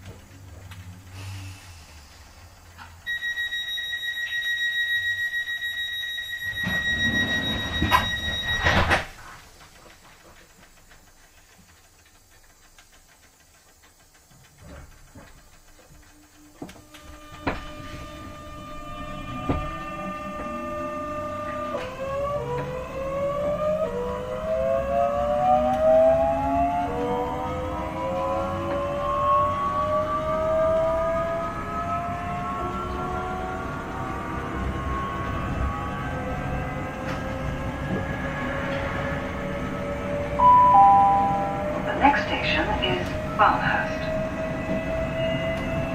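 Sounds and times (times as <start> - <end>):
train doors closing: 1.1 - 9.6, 14.6 - 29.8, 30.8 - 45.9
train door warning tone: 3.1 - 9.1, 16.1 - 33.0, 33.9 - 45.9.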